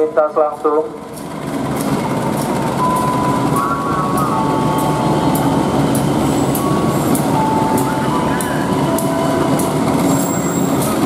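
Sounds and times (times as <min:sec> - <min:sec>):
locomotive engine and rail rumble: 0:00.0 - 0:11.0
wheels squealing: 0:06.1 - 0:11.0.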